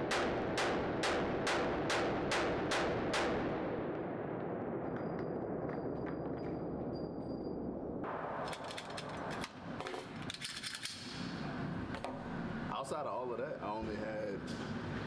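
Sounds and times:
shooting range noise: 0.0 - 12.4
pistol metallic clicks and clatter: 8.4 - 11.2.

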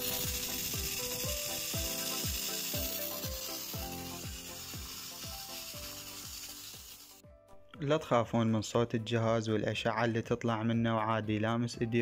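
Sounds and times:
steamer hissing: 0.0 - 7.2
background music with thumping beat: 0.0 - 7.9.

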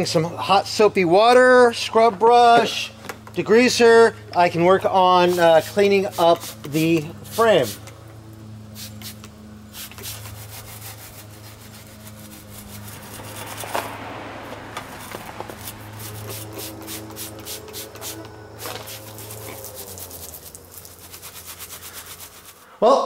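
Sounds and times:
scrub brush scrubbing: 5.1 - 7.9, 8.8 - 22.7
spray bottle squirting: 5.2 - 8.0, 8.7 - 13.8, 14.8 - 22.6.

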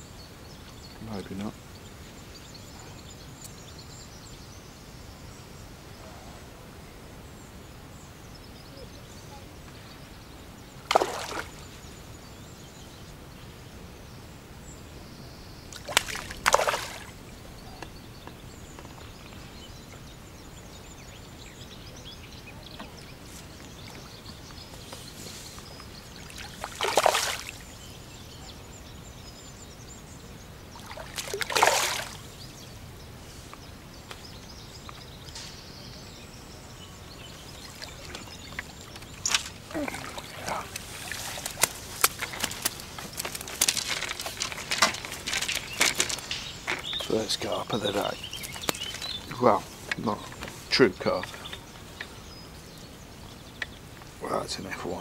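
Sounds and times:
fish splashing in water: 10.8 - 11.6, 15.7 - 17.2, 26.2 - 27.6, 30.8 - 32.3, 37.6 - 46.8.

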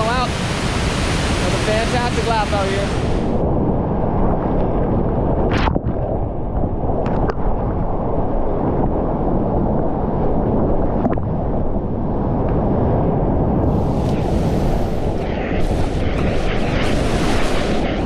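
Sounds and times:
whitewater rushing: 0.0 - 3.4.

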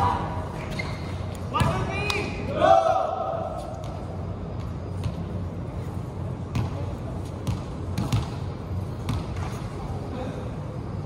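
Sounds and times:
volleyball thuds echoing in hall: 0.0 - 5.6, 6.4 - 10.3
steady low hum: 0.0 - 11.0.

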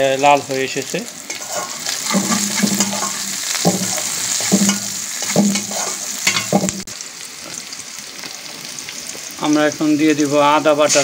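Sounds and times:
onions sizzling in oil: 0.0 - 11.0
metal spatula scraping pan: 1.3 - 6.9.

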